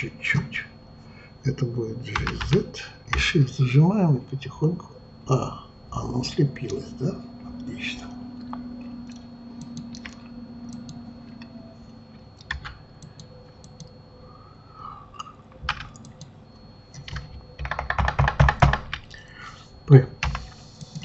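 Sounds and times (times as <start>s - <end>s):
keyboard key presses: 15.6s - 16.3s, 16.9s - 19.1s.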